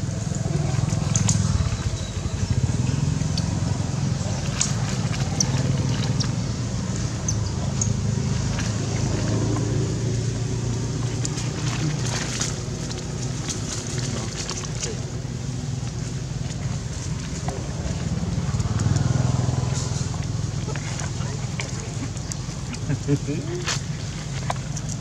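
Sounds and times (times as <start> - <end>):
low motor hum: 0.0 - 25.0
light clicks and ticks: 17.3 - 20.3.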